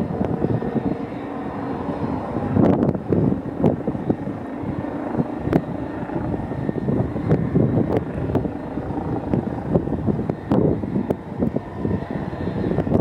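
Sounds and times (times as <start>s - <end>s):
helicopter rotor rumble: 0.0s - 13.0s.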